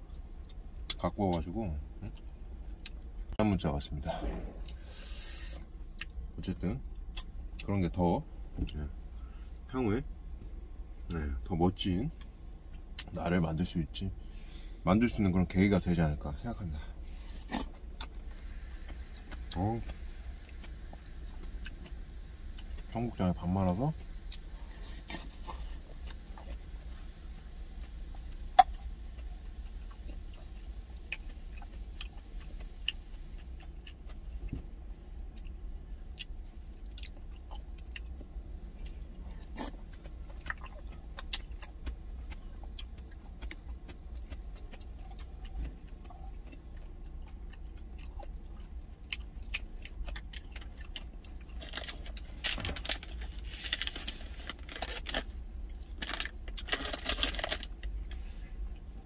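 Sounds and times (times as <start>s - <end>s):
low steady hum: 0.0s - 59.0s
person chewing: 7.0s - 7.3s, 27.7s - 34.6s, 35.2s - 59.0s.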